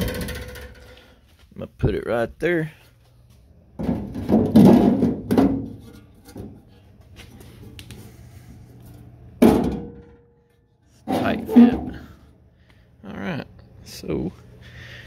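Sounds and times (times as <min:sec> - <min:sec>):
metal scraping and clanking: 0:11.0 - 0:12.2.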